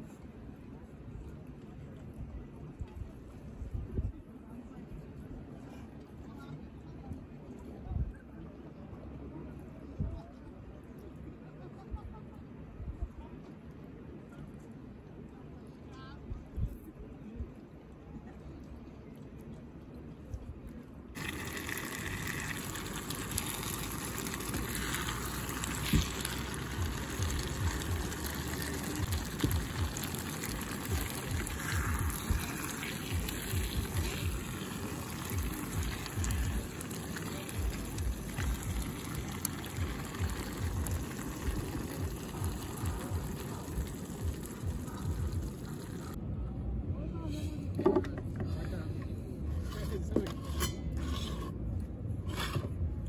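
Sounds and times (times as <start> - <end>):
rushing water: 21.2 - 46.2.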